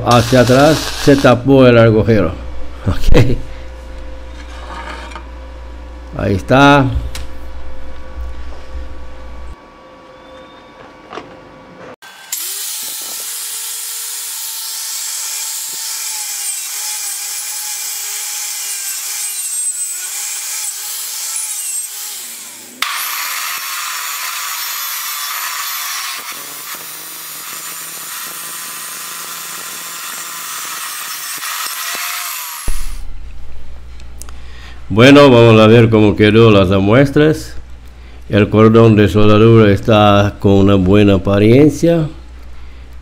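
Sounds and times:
chop saw cutting steel: 0.0 - 1.3, 12.0 - 33.0
low hum: 0.0 - 10.5, 32.7 - 35.0.

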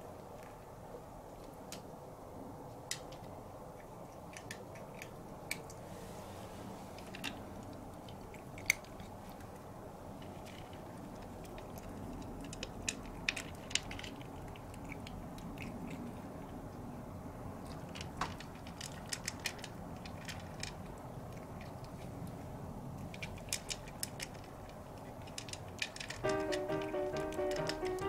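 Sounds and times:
cat chewing crunchy food: 3.7 - 5.9, 6.9 - 17.0, 17.6 - 26.2.

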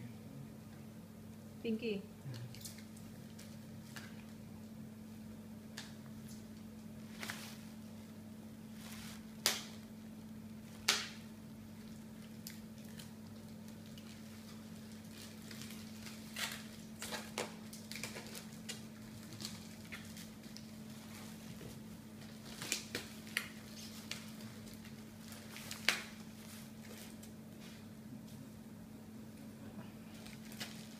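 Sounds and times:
steady low hum: 0.0 - 30.9
plastic bags rustling: 12.9 - 27.3, 30.1 - 30.9.

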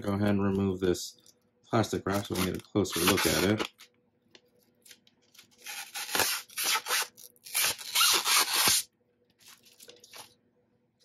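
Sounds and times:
plastic wrap crinkling: 4.8 - 10.4.

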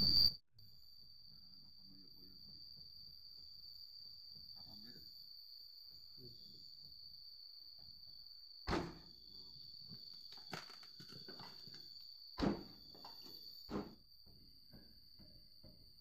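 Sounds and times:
car door shutting thunks: 12.4 - 12.8, 13.7 - 14.0.

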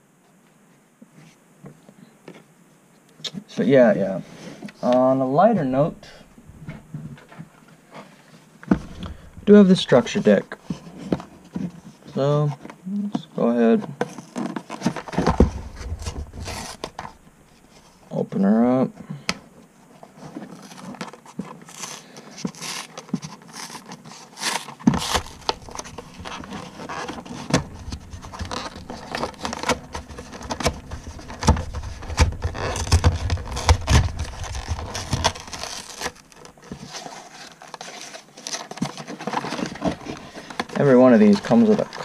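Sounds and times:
cardboard box scraping and crinkling: 7.9 - 12.0, 14.0 - 18.1, 19.9 - 42.0.

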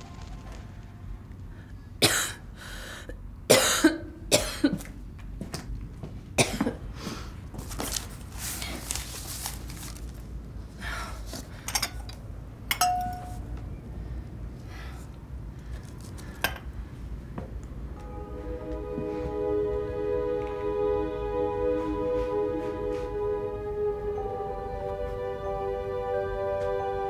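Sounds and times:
drinking glass clinking: 12.7 - 13.4.

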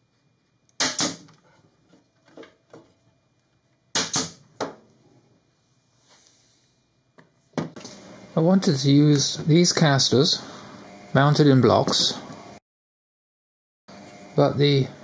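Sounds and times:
pneumatic nailer pops: 0.8 - 1.4, 3.9 - 4.8.

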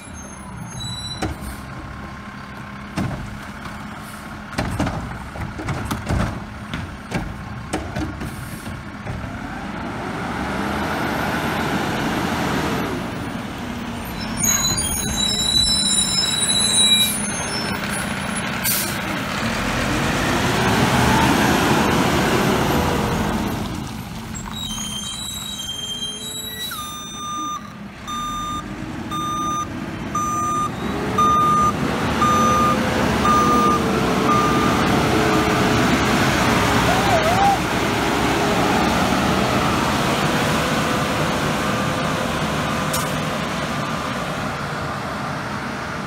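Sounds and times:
truck reversing beeper: 0.0 - 2.1, 14.1 - 19.0, 24.6 - 35.7, 39.4 - 40.0
garbage truck diesel engine running: 0.0 - 10.0, 26.3 - 46.0.

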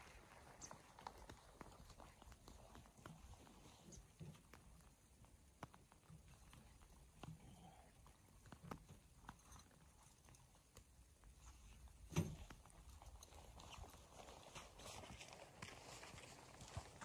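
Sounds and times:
thump: 12.1 - 12.5
footsteps on snowy grass: 13.8 - 17.0.

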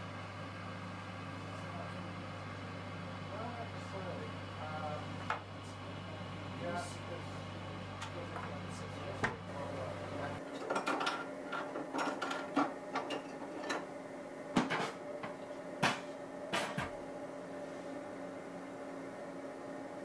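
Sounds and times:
centrifuge humming: 0.0 - 20.0
steady background hum: 0.0 - 20.0.

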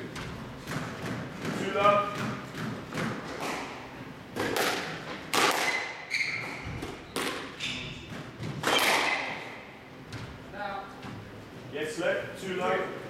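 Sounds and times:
squash ball knocks: 4.4 - 9.5
shoes squeaking on court floor: 4.9 - 11.4.

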